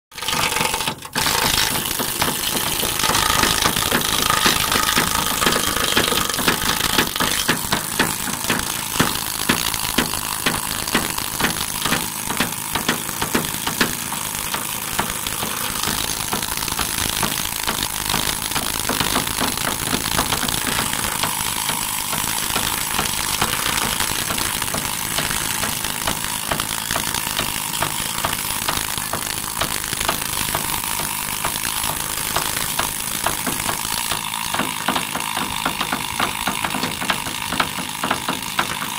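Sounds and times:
needle scaler rattling on steel: 0.2 - 27.9.

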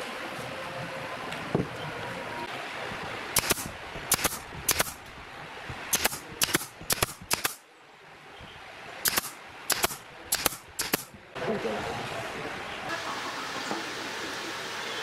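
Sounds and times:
nail gun firing into wood: 3.4 - 5.0, 5.9 - 7.6, 9.0 - 11.2.

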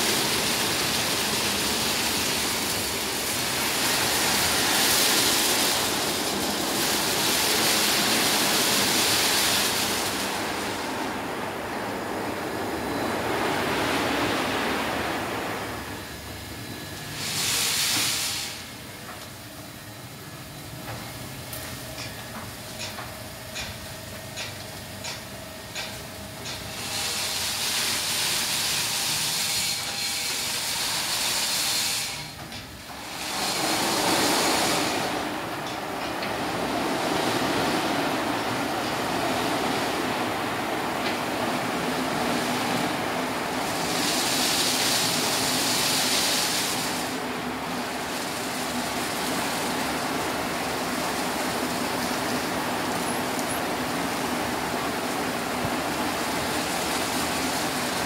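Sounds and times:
water spray and spinning brushes: 0.0 - 11.1, 26.5 - 35.6, 36.3 - 58.0.

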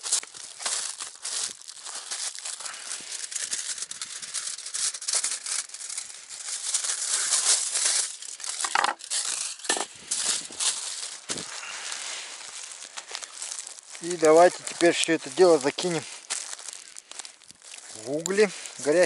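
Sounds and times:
knife cutting foil: 0.0 - 11.8
aluminium foil crinkling: 0.0 - 19.0.

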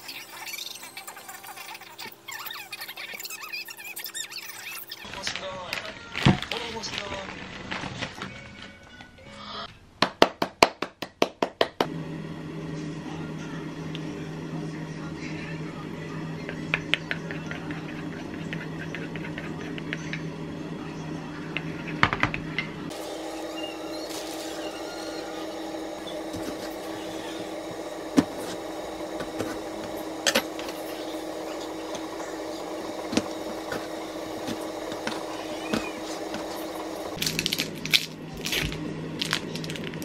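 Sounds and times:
low kitchen room hum: 0.0 - 40.0.

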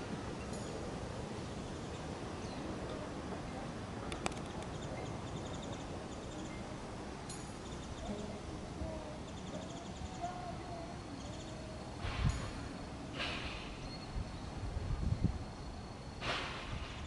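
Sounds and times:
sharp click: 4.1 - 4.7.

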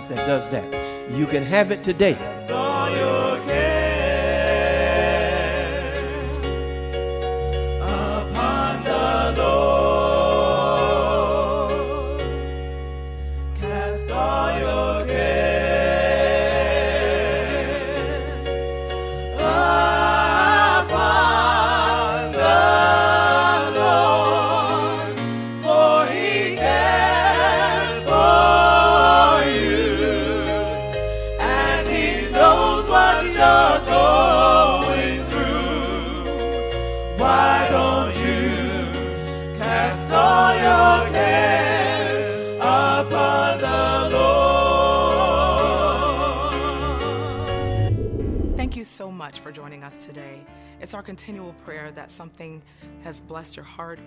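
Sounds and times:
gospel voices singing: 0.0 - 48.8
sustained bass backing: 46.9 - 48.8.

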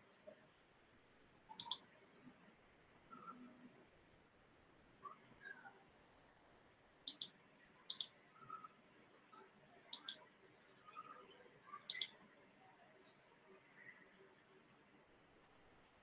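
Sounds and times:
computer mouse double-clicking: 1.5 - 1.8, 7.1 - 8.1, 9.9 - 10.2, 11.9 - 12.2.

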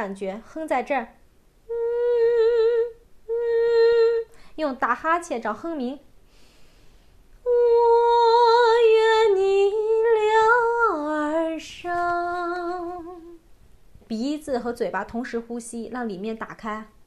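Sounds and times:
woman humming: 1.7 - 4.3, 7.4 - 13.4.

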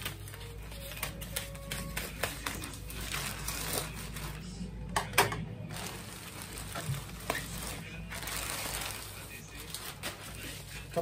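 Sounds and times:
scissors snipping plastic bag: 0.0 - 4.4
plastic bag crinkling: 0.0 - 4.5, 5.7 - 11.0.

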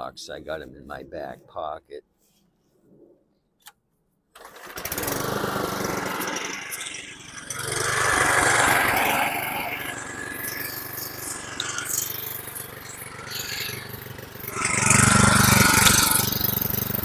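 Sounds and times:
lawn mower engine running: 4.4 - 17.0.

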